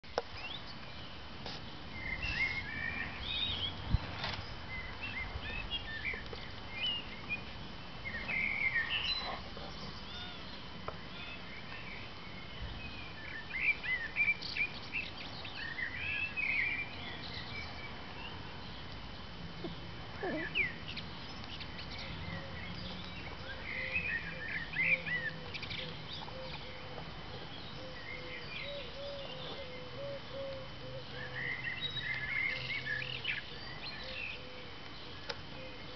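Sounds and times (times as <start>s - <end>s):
steady outdoor background noise: 0.0s - 35.9s
songbirds chirping and singing: 0.1s - 35.9s.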